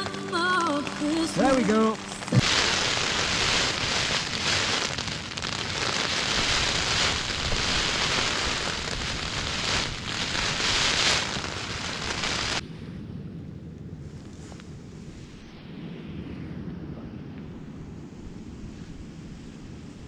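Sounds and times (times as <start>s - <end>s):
heavy rain on tent: 0.0s - 12.6s
low rush of wind: 2.4s - 20.0s.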